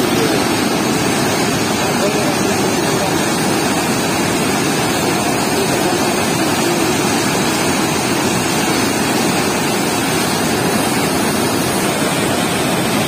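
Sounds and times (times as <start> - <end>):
water rushing through sluice gate: 0.0 - 13.0.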